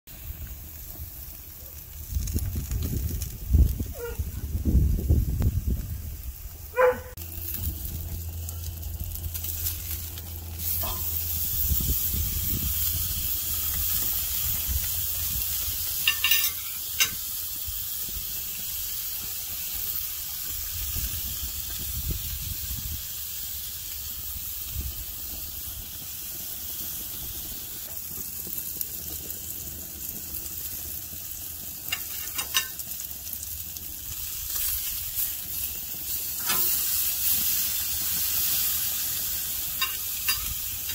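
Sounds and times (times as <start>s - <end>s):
steak sizzling on a grill: 0.1s - 40.9s.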